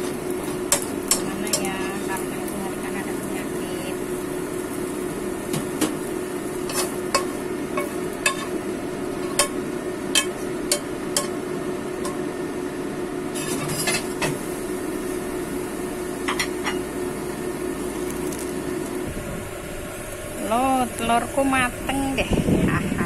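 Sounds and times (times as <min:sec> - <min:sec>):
steady hum: 0:00.0 - 0:23.0
metal spatula scraping frying pan: 0:06.6 - 0:07.3, 0:13.3 - 0:14.3.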